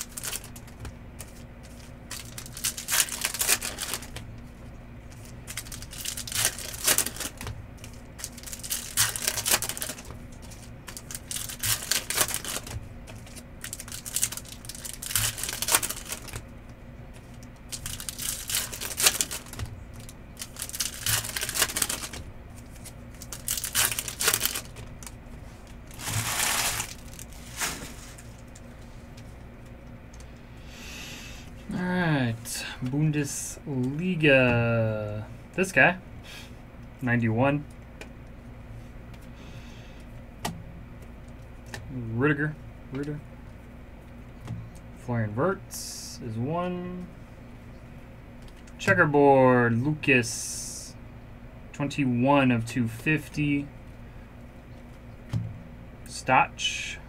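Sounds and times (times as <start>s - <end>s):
foil wrappers crinkling and tearing: 0.0s - 4.2s, 5.1s - 16.4s, 17.3s - 28.6s.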